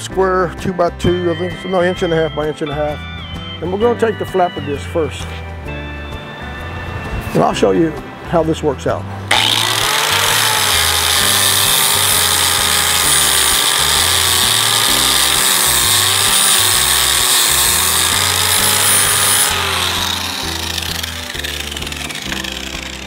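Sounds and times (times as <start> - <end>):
angle grinder grinding metal: 9.3 - 23.0.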